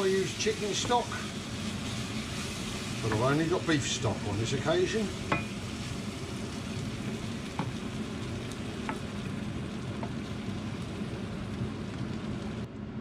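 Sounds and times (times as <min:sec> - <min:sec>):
liquid sizzling in frying pan: 0:00.0 - 0:13.0
wooden spoon tapping pan: 0:00.7 - 0:01.1, 0:05.2 - 0:05.6, 0:07.5 - 0:07.8, 0:08.8 - 0:09.2.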